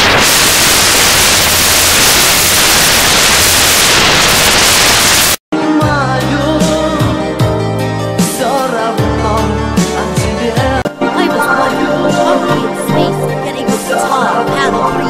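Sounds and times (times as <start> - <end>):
loud static hiss: 0.0 - 5.4
melodic music: 5.6 - 15.0.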